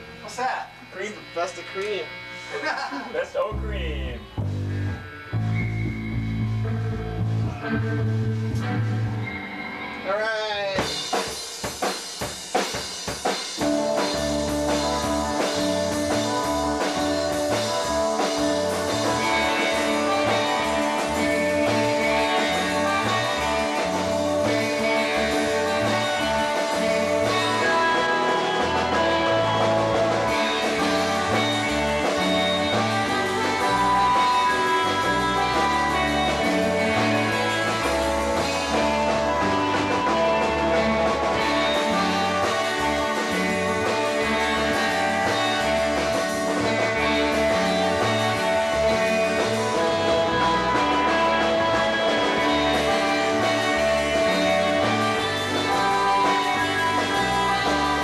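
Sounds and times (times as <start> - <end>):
rock band playing: 0.0 - 58.0.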